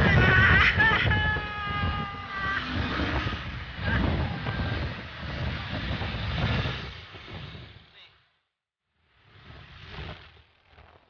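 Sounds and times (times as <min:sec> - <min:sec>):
road traffic noise: 0:00.0 - 0:08.4.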